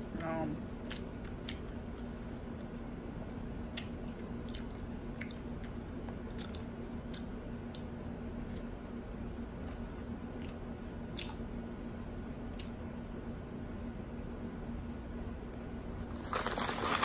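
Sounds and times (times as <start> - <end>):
person chewing crunchy food: 15.9 - 17.0.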